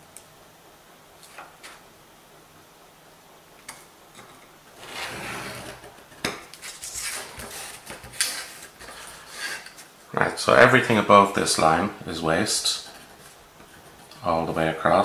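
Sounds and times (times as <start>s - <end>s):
scriber scratching metal: 4.8s - 5.9s, 12.6s - 14.2s.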